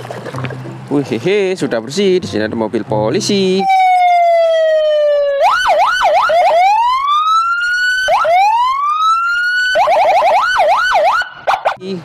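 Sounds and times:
police car siren: 0:03.6 - 0:11.8.

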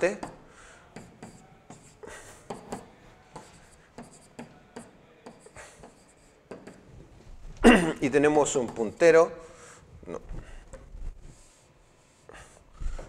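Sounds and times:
stylus scratching on whiteboard: 0:00.1 - 0:07.1.

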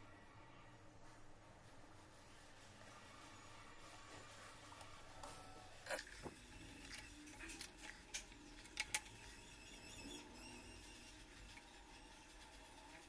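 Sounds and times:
small tools clicking and tapping: 0:05.9 - 0:09.3.

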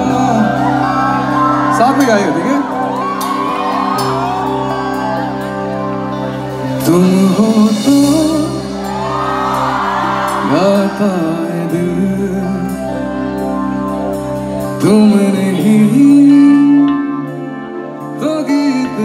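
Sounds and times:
man singing into a microphone: 0:00.0 - 0:01.7, 0:06.6 - 0:13.4, 0:14.6 - 0:19.0
live rock band playing: 0:00.0 - 0:19.0.

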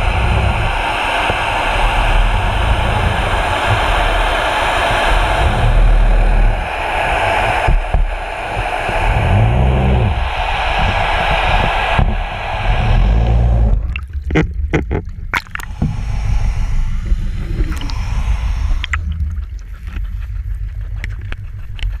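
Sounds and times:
water rushing past underwater: 0:00.0 - 0:20.1
sharp clicks and knocks: 0:13.7 - 0:16.0.

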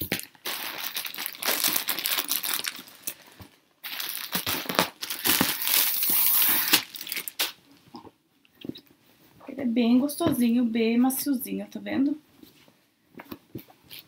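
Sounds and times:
plastic packaging crinkling: 0:00.0 - 0:07.6.

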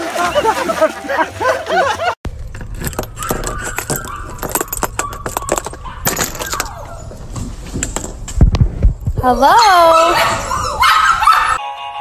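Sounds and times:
dog collar tags jingling: 0:02.4 - 0:06.8
dog claws clicking and scratching: 0:02.5 - 0:06.8.

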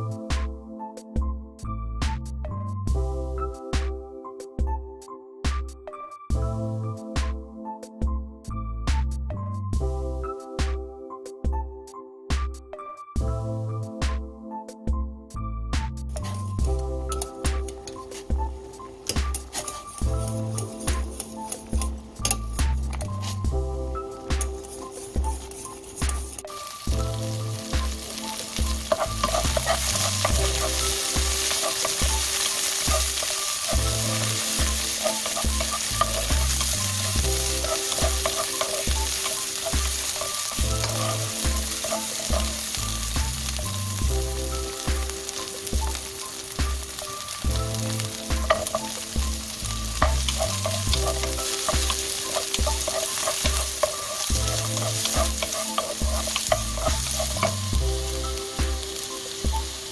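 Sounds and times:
background music with bass line: 0:00.0 - 0:59.9
onions sizzling in a wok: 0:16.1 - 0:59.9
wooden spatula scraping a pan: 0:19.2 - 0:22.4, 0:24.4 - 0:26.9, 0:27.8 - 0:43.6, 0:47.9 - 0:57.9.

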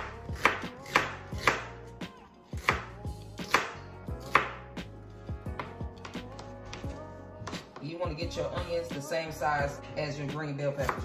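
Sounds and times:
knife chopping onion on board: 0:00.0 - 0:01.8, 0:02.5 - 0:04.6, 0:10.8 - 0:11.0.

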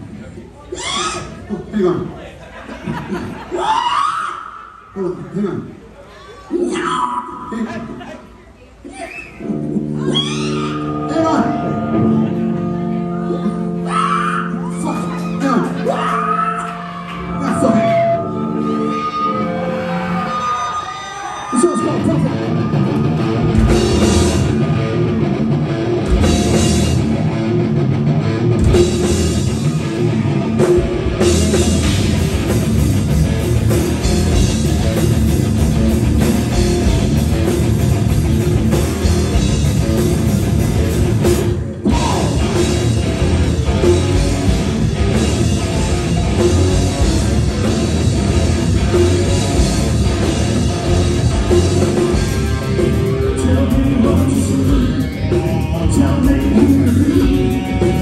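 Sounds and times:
rock band playing: 0:09.4 - 0:58.0.

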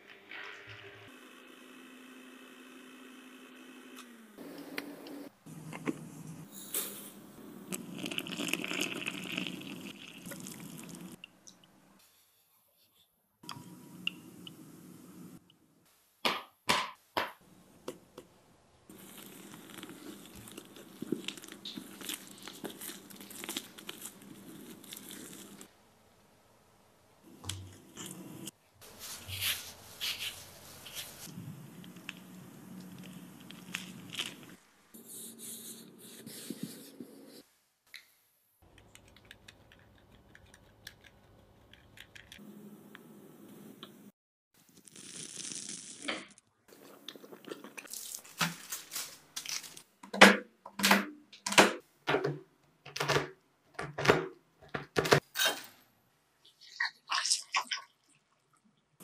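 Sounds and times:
plastic gloves crinkling: 0:18.9 - 0:25.7, 0:28.8 - 0:34.7, 0:47.2 - 0:50.0.

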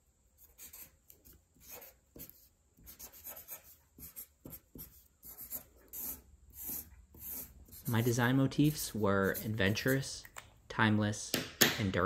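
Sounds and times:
marker scratching on paper: 0:00.4 - 0:10.2.

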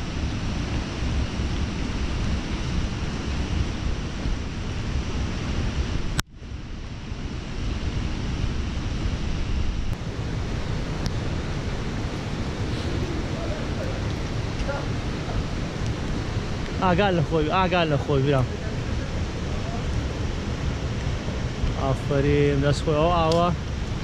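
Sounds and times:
wind rumbling on microphone: 0:00.0 - 0:24.0
flooded stream rushing: 0:10.0 - 0:24.0.

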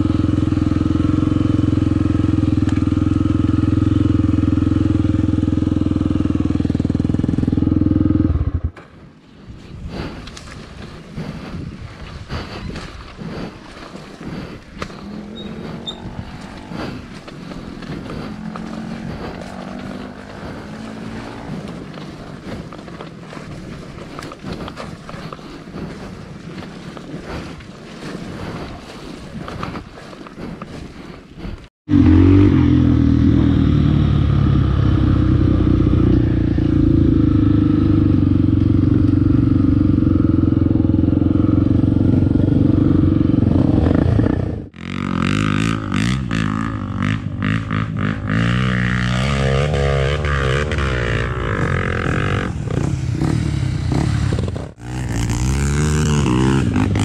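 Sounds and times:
dirt bike engine revving: 0:00.0 - 0:08.8, 0:14.2 - 0:22.7, 0:31.9 - 0:57.0
wind noise on microphone: 0:08.3 - 0:31.6
steady engine drone: 0:13.2 - 0:23.2, 0:31.9 - 0:57.0.

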